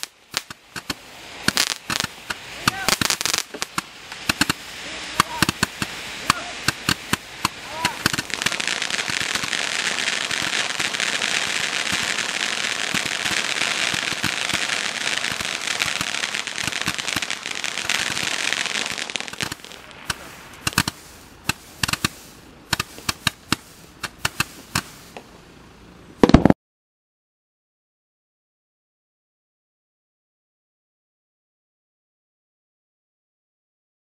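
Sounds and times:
sharp firework pops and cracks: 0:00.0 - 0:25.3, 0:26.2 - 0:26.6
roman candle crackling hiss: 0:00.0 - 0:25.8.

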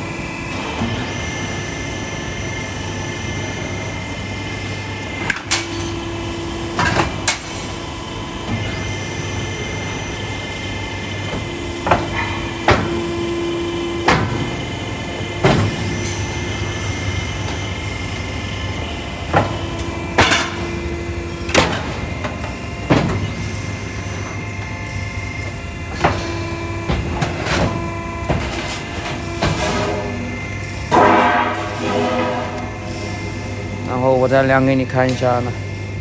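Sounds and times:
machinery humming: 0:00.0 - 0:36.0
humming tone: 0:15.4 - 0:34.0.

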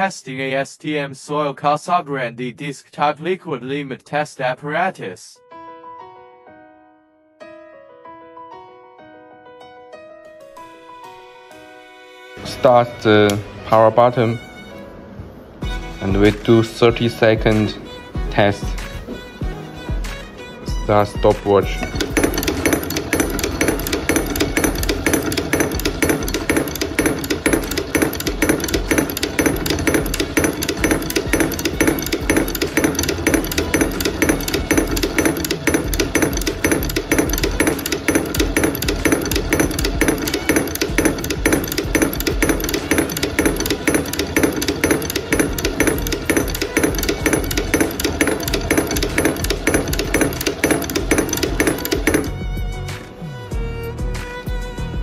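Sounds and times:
device cup knocking on base: 0:21.8 - 0:52.4.

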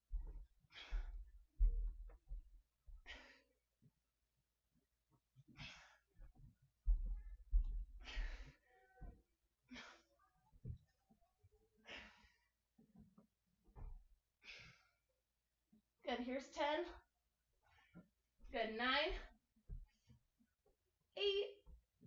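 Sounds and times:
soft low thumps: 0:00.0 - 0:03.1, 0:06.2 - 0:08.5
woman breathing heavily: 0:00.1 - 0:03.6, 0:05.5 - 0:10.8, 0:11.8 - 0:12.6, 0:13.8 - 0:15.0.

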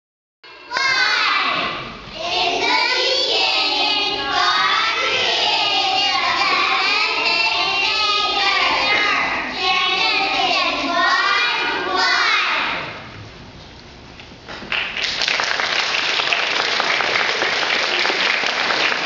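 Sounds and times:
children singing together: 0:00.5 - 0:13.1.

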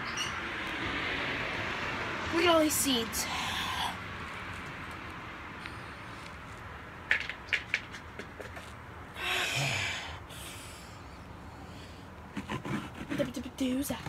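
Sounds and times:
person exhaling through nose: 0:09.2 - 0:11.0.

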